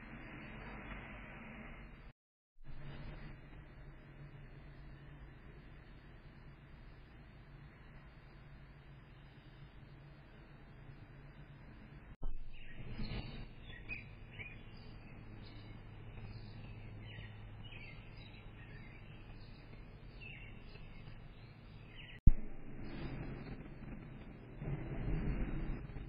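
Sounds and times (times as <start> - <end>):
steady low hum: 0.0 - 26.0
birds chirping: 12.5 - 22.2.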